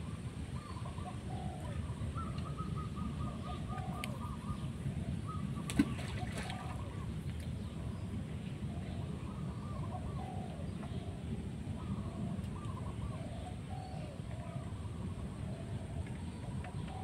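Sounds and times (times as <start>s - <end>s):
steady low rumble: 0.0s - 17.0s
birds calling: 0.5s - 17.0s
doves cooing: 0.6s - 7.1s, 8.7s - 11.2s.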